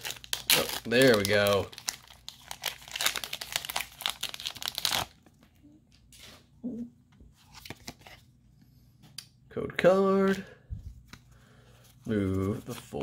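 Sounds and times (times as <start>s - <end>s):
foil wrapper crinkling and tearing: 0.0s - 5.3s
cards rustling and clicking: 7.4s - 8.2s.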